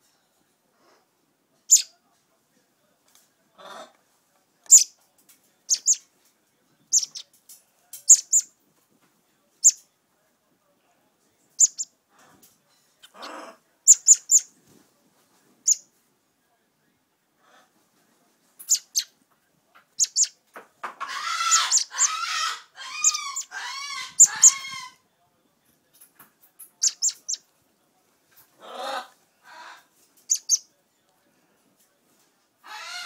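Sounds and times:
bird nestling begging calls: 0:06.9 - 0:07.2, 0:11.6 - 0:11.9, 0:21.2 - 0:24.8, 0:30.3 - 0:30.6.

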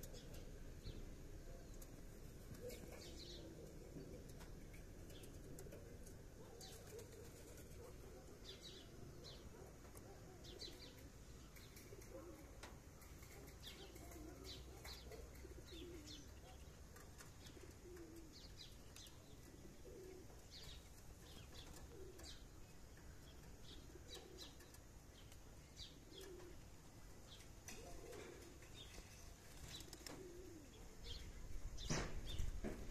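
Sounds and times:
small birds chirping: 0:00.0 - 0:32.9
pigeon cooing: 0:02.5 - 0:11.2, 0:11.8 - 0:22.5, 0:23.7 - 0:24.7, 0:25.9 - 0:26.8, 0:27.7 - 0:28.8, 0:29.8 - 0:31.2.

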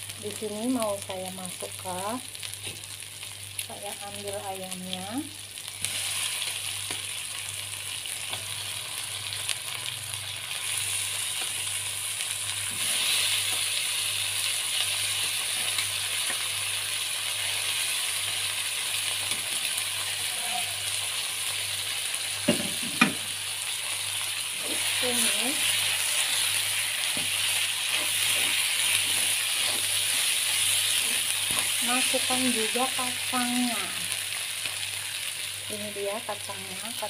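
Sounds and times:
paste sizzling in oil: 0:05.4 - 0:37.0.

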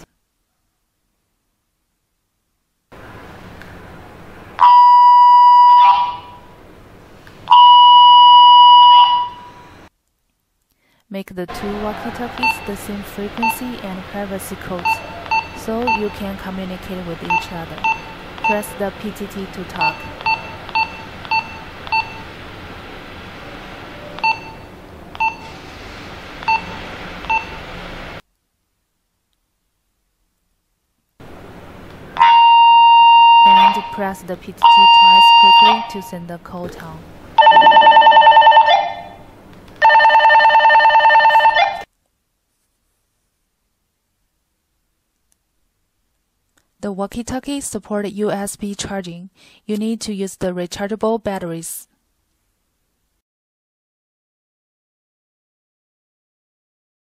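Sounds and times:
walkie-talkie electronic tone: 0:32.2 - 0:34.0, 0:34.6 - 0:36.1.

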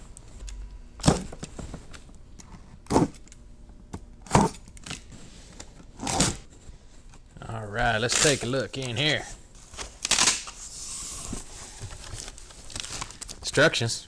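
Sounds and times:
knife slicing packing tape: 0:10.0 - 0:10.5.

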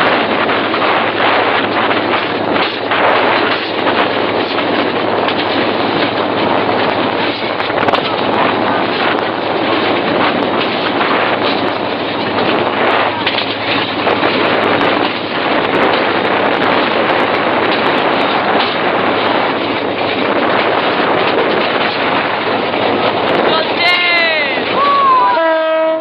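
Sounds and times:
train running at speed: 0:00.0 - 0:26.0.

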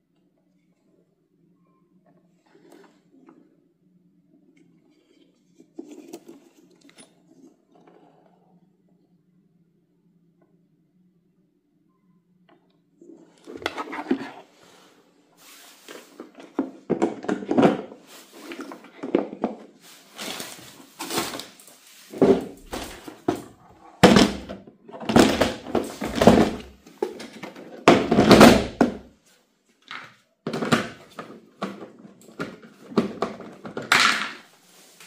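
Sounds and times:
hard plastic parts clattering: 0:15.9 - 0:29.0, 0:29.8 - 0:35.0.

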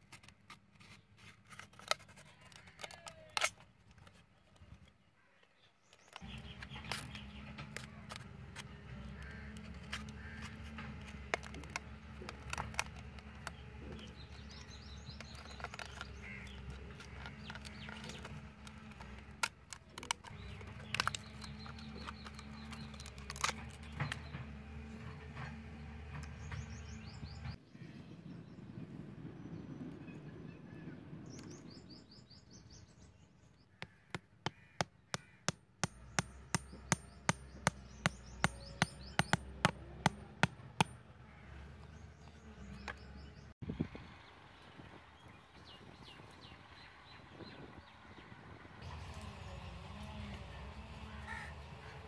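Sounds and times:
plastic bottle being cut: 0:06.1 - 0:24.2.

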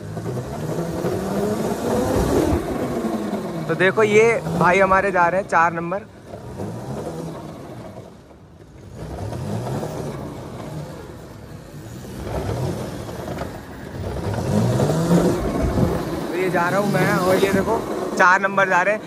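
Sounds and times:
go-kart motor accelerating: 0:00.0 - 0:19.0.

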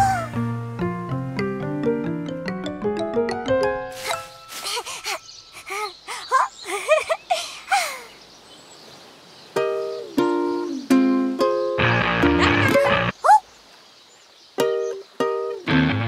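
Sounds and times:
ukulele strumming chords: 0:09.6 - 0:13.1, 0:14.6 - 0:16.0.

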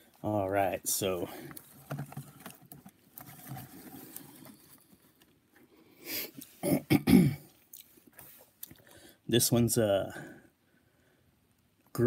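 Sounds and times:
man clearing his throat: 0:06.6 - 0:07.5.

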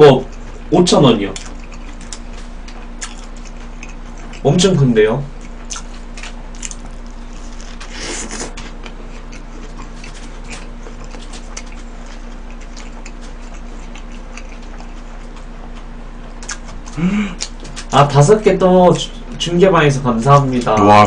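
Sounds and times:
low steady hum: 0:00.0 - 0:21.0
person chewing food: 0:00.2 - 0:04.4, 0:05.3 - 0:17.9
bite crunch: 0:01.3 - 0:04.4, 0:05.4 - 0:18.0.

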